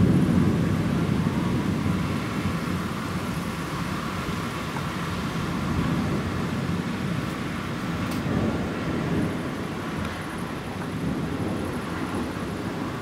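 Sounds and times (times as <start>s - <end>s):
thunder rumbling: 0.0s - 13.0s.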